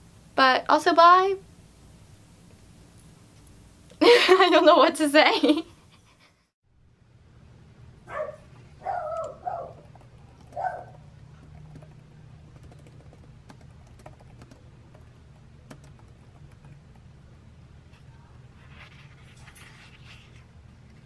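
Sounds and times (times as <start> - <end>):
low steady hum: 0.0 - 21.0
laptop keyboard typing: 9.1 - 17.2.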